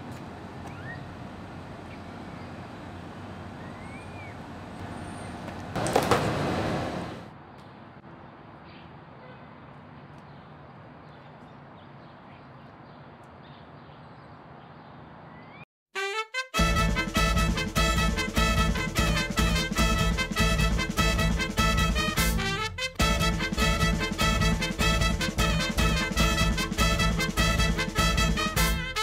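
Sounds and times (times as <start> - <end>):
bird chirps: 0.7 - 1.1, 3.6 - 4.4, 11.1 - 15.6
loud burst of noise: 5.8 - 7.3
swing music: 16.0 - 29.0.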